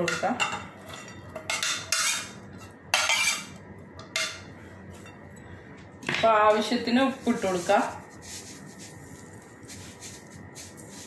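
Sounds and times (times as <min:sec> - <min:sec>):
spoon clinking on ceramic plates: 0:00.0 - 0:05.2.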